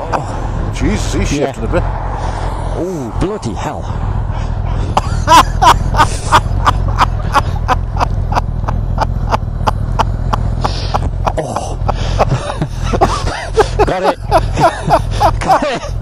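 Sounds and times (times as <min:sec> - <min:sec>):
motorcycle engine idling: 0:03.8 - 0:16.0.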